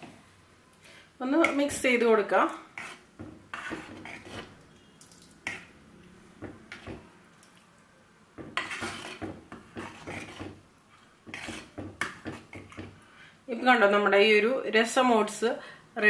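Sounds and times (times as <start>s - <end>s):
ladle scraping clay pot: 2.8s - 4.8s, 6.5s - 7.1s, 8.4s - 10.6s, 11.2s - 12.9s.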